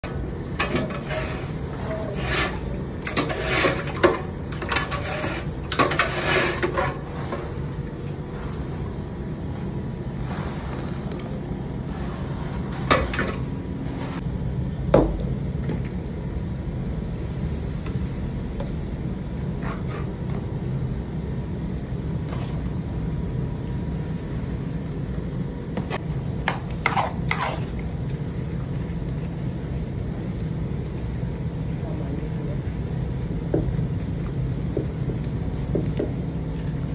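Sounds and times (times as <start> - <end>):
wooden paddle scraping pot: 0.6 - 7.6, 25.8 - 27.8.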